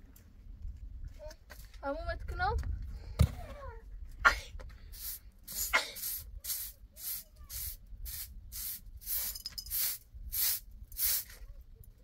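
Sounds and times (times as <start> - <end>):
hand broom sweeping earth floor: 5.0 - 11.5.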